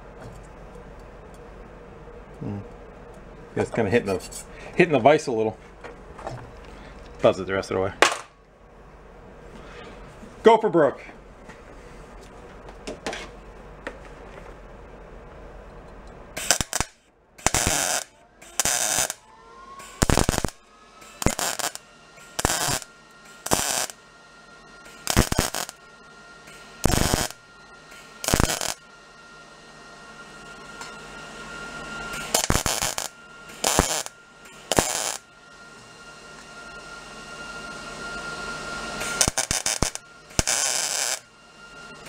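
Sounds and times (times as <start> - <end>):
welder crackling bursts: 16.4 - 19.2, 19.8 - 24.0, 24.8 - 25.8, 26.4 - 28.8, 32.1 - 35.3, 39.0 - 41.2.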